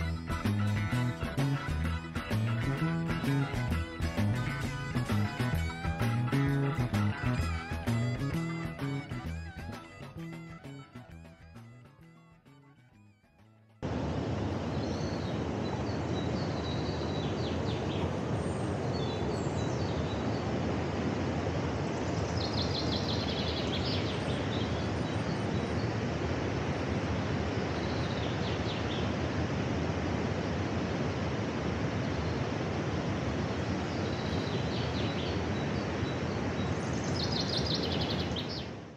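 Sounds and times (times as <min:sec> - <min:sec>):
river water rushing over rapids: 0:13.8 - 0:22.8, 0:24.0 - 0:36.8
bird chirping: 0:33.9 - 0:38.8.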